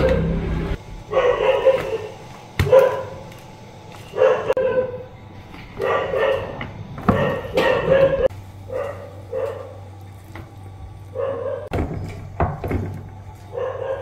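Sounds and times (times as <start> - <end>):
dog barking: 1.1 - 3.2, 4.1 - 5.1, 5.8 - 9.8, 11.1 - 11.7, 13.5 - 14.0.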